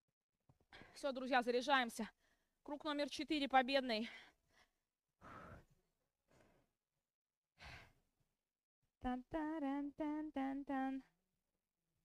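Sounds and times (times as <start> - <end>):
woman singing syllables: 9.0 - 11.2.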